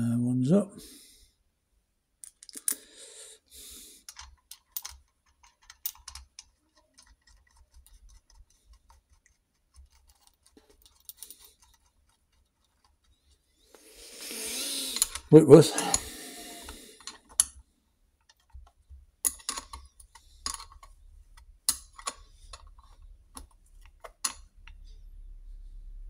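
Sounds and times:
metal washers and nuts clicking: 2.2s - 2.8s, 4.1s - 13.1s, 14.9s - 16.1s, 17.0s - 17.6s, 18.2s - 24.8s.

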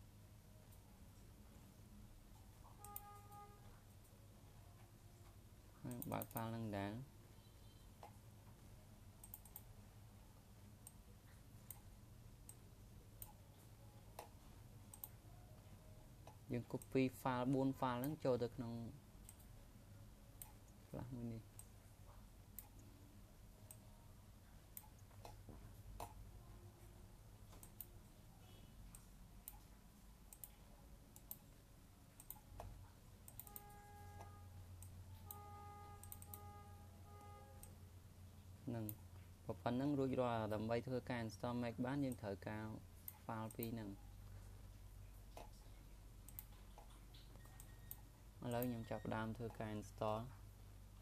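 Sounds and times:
faint low hum: 0.0s - 51.0s
faint steady tone: 0.0s - 51.0s
computer mouse clicks: 5.8s - 6.6s, 9.2s - 9.7s, 11.6s - 12.6s, 13.2s - 13.4s, 14.1s - 15.2s, 19.2s - 19.5s, 20.4s - 20.8s, 22.6s - 22.9s, 24.7s - 26.2s, 27.5s - 27.9s, 28.9s - 35.4s, 36.0s - 36.4s, 45.3s - 49.6s.

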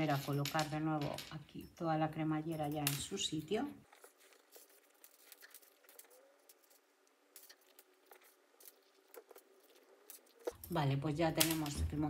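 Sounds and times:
cloth rustling: 3.5s - 10.6s.

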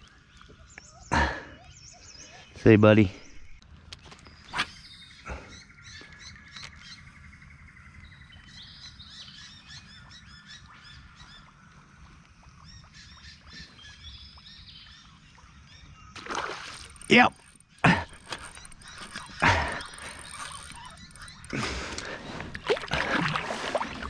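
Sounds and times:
birds chirping and trilling: 0.0s - 24.0s.

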